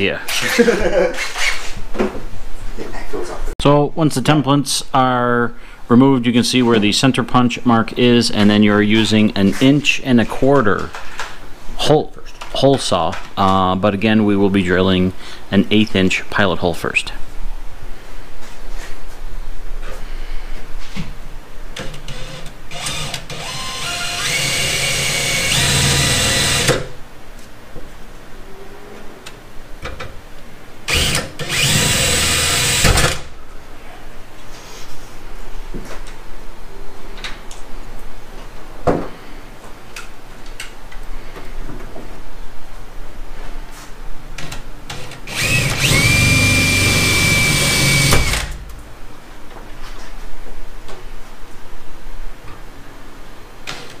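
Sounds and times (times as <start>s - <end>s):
drill motor whining: 22.1s - 26.8s, 30.9s - 32.9s, 45.3s - 48.6s.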